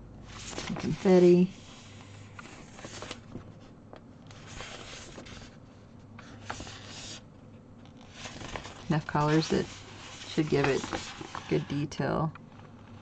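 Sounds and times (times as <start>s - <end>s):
paper rustling: 0.3s - 5.6s, 6.2s - 7.2s, 7.8s - 11.9s.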